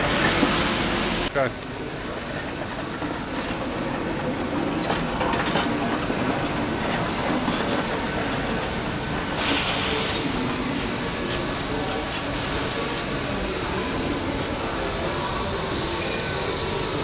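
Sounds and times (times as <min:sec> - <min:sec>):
pallet truck wheels rolling on concrete: 0:02.3 - 0:08.8.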